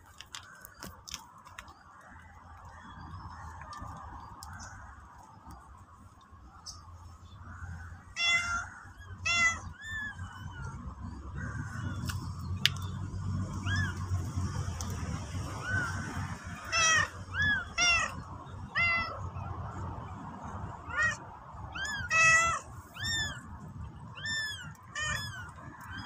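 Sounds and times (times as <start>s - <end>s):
cat meowing: 8.1s - 10.8s, 15.6s - 19.3s, 20.8s - 23.5s, 24.1s - 26.0s.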